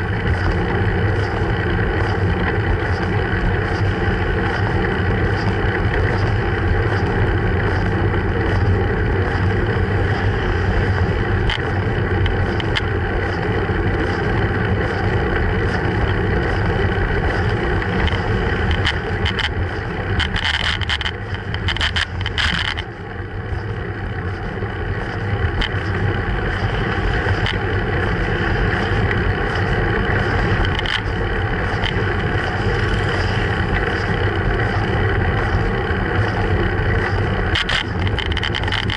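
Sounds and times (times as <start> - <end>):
wind and road rumble: 0.0 - 38.9
clicks and rattles: 17.3 - 19.6, 20.2 - 22.9, 30.4 - 31.1, 37.0 - 38.9.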